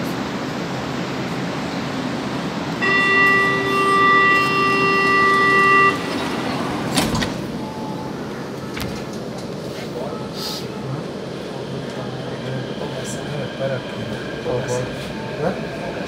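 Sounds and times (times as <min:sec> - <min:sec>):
train hum: 0:00.0 - 0:16.0
door warning buzzer: 0:02.8 - 0:07.0
train doors shutting knock: 0:02.8 - 0:09.5.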